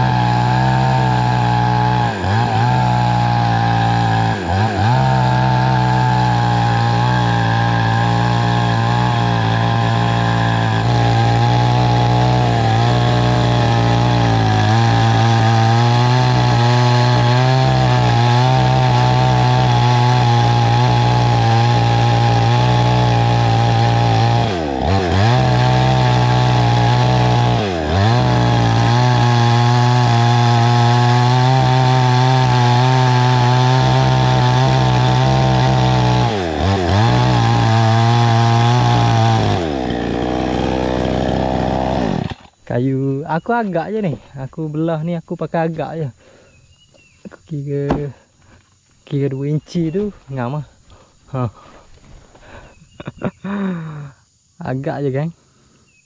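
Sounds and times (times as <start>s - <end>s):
chainsaw cutting log: 0.0s - 42.7s, 47.3s - 48.6s, 53.5s - 54.0s.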